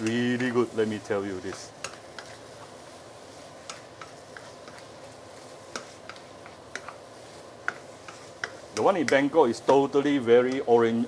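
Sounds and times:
food sizzling in a wok: 0:00.0 - 0:11.0
spatula knocking against pan: 0:07.6 - 0:09.9.

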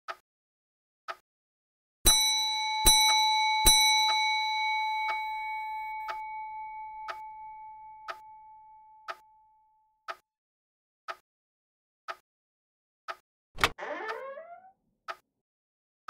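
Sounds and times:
clock chime bell ringing: 0:02.1 - 0:09.0.

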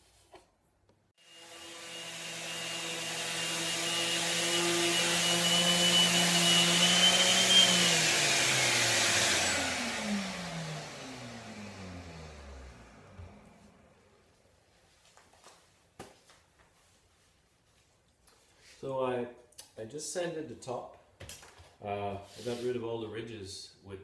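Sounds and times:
orbital sander whining: 0:01.2 - 0:14.1.

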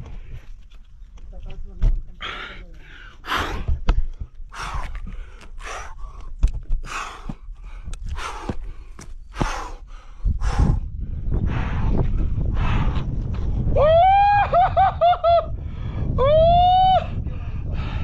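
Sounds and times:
man breathing hard: 0:02.2 - 0:13.6, 0:15.5 - 0:16.2, 0:17.2 - 0:18.0
low rumble: 0:06.9 - 0:18.0.

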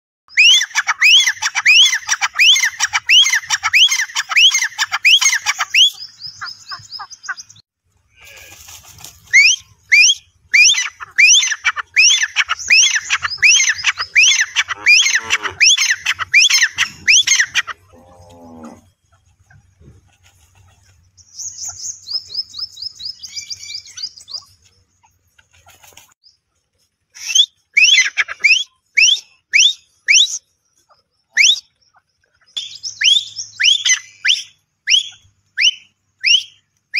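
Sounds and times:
francolin calling: 0:09.3 - 0:19.2, 0:27.2 - 0:36.7.

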